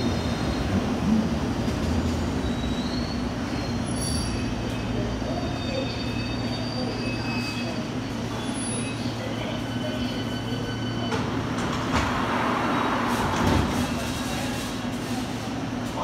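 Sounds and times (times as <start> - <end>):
train doors closing: 0.0 - 15.9.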